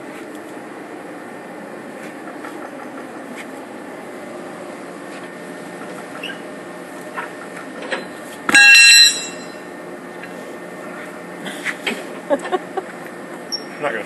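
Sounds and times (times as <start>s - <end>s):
workshop machinery humming: 0.0s - 14.0s
high-pitched metallic squeal: 8.6s - 9.6s.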